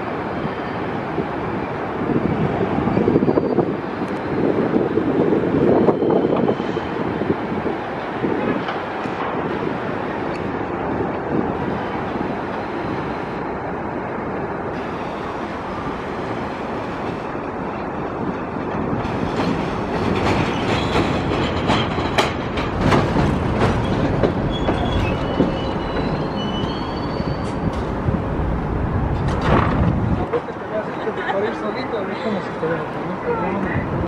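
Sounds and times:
subway train rumbling: 0.0 - 34.0
high wheel squeals: 0.1 - 4.9, 5.6 - 7.0, 19.1 - 21.3, 23.6 - 27.9
wheels clicking over rail joints: 17.0 - 26.8.

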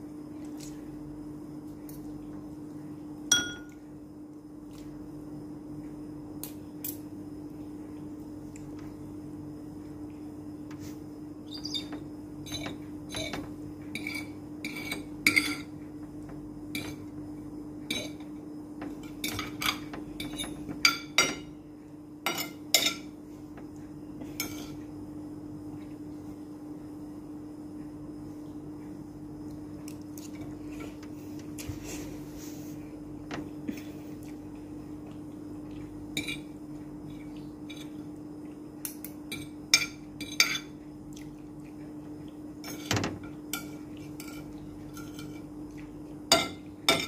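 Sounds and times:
cutlery clinking on a plate: 3.3 - 3.8, 42.6 - 45.5, 46.3 - 47.0.

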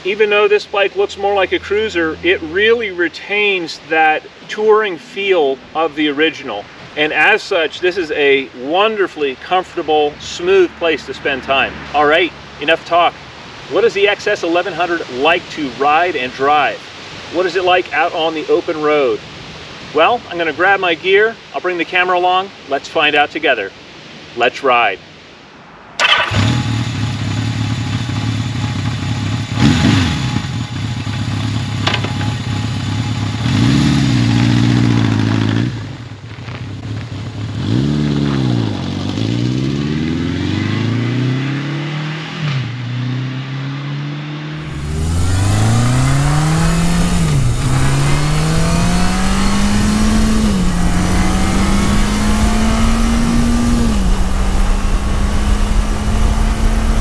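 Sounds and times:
motorcycle engine revving: 1.0 - 3.0, 26.0 - 57.0
wind noise: 44.6 - 57.0.

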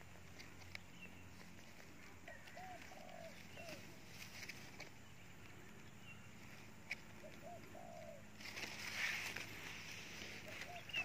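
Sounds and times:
rustle: 0.0 - 11.0
dove cooing: 1.9 - 4.5, 7.1 - 11.0.

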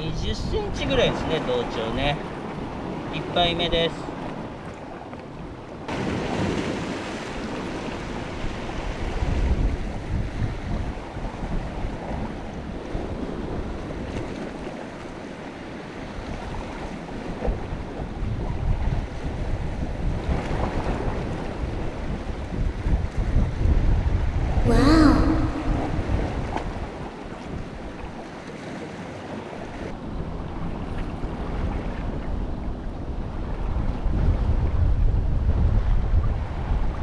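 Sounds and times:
sea waves washing: 5.8 - 10.3, 24.7 - 29.9
wind gusting on microphone: 5.9 - 14.6, 16.2 - 28.0, 31.2 - 37.0.

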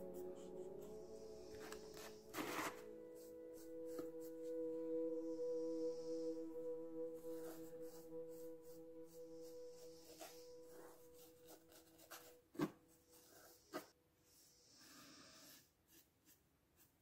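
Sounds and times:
paintbrush brushing: 0.0 - 4.6, 7.2 - 13.9
held music tone: 0.0 - 13.9.

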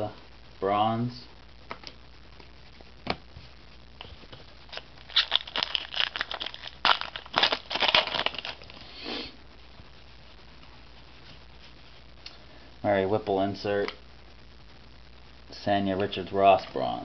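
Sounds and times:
foil wrapper crinkling: 4.0 - 9.0.

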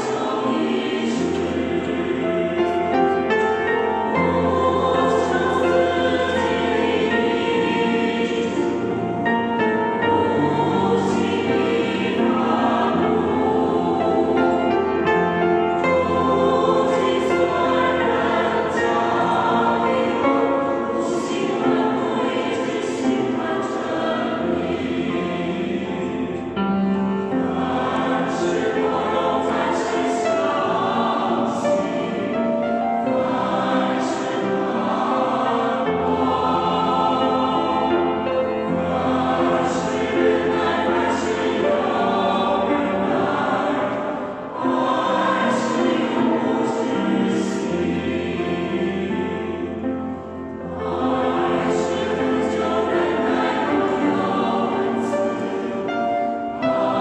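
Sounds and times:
mixed choir singing a hymn: 0.0 - 57.0.

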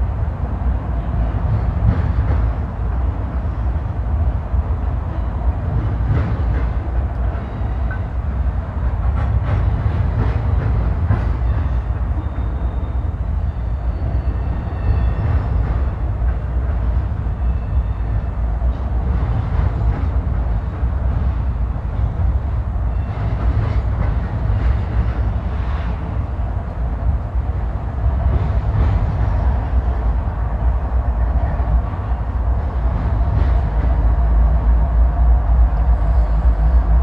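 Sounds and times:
train wheels rumbling on rails: 0.0 - 37.0
faint high squeals: 11.4 - 15.6.

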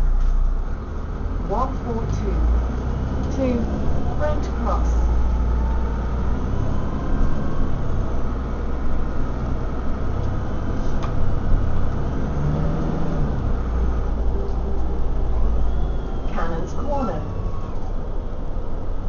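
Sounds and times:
bus engine drone from inside: 0.0 - 19.0.

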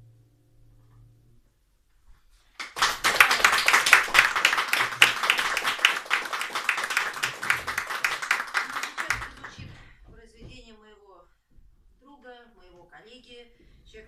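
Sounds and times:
audience applauding: 2.6 - 9.8.

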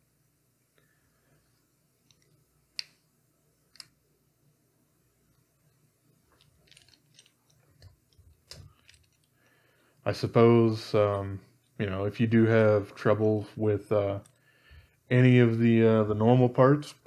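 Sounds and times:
small parts clicking and rattling: 2.0 - 3.0, 5.3 - 9.6, 14.1 - 14.4.

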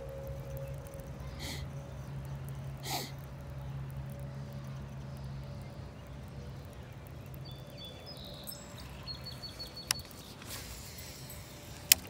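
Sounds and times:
outdoor background noise: 0.0 - 12.0
small birds chirping: 0.0 - 12.0
sharp click: 11.8 - 12.0.

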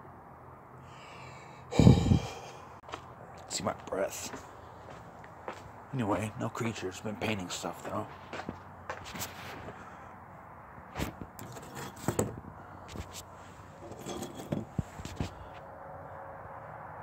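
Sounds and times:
handling scrapes: 9.0 - 9.8, 10.9 - 15.6.

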